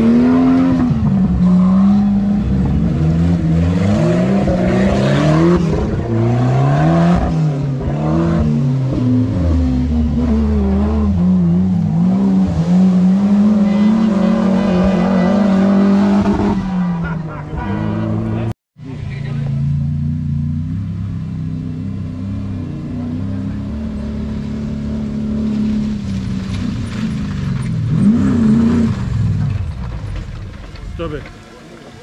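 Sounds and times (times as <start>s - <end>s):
engine revving hard: 0.0s - 18.5s.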